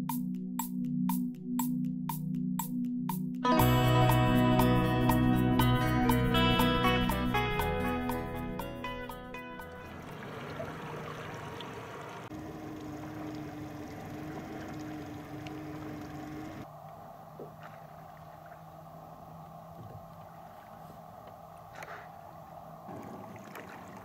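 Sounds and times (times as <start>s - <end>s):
boat engine idling: 3.5s - 16.6s
water: 8.9s - 24.0s.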